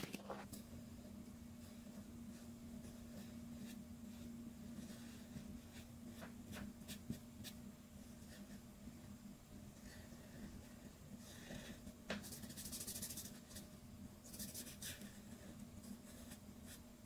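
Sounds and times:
steady low hum: 0.0 - 17.0
marker scratching on paper: 12.2 - 13.7, 14.3 - 16.8.

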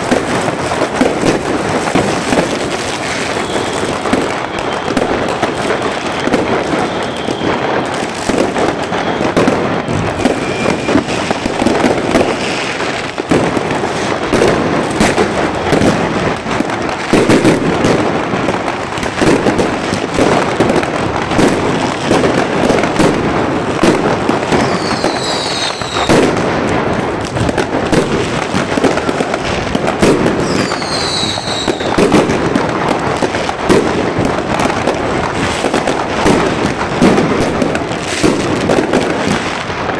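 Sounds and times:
fireworks cracks and bangs: 0.0 - 39.9.

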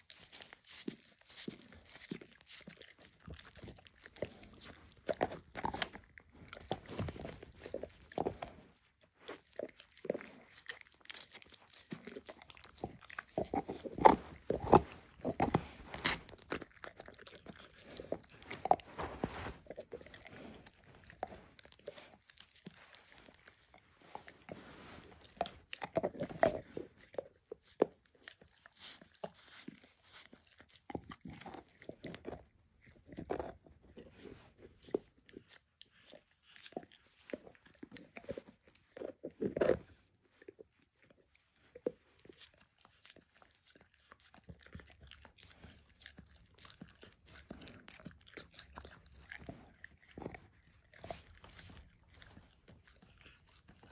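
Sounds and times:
wet mouth sounds: 0.0 - 39.9
dog gnawing bone: 0.0 - 53.9.

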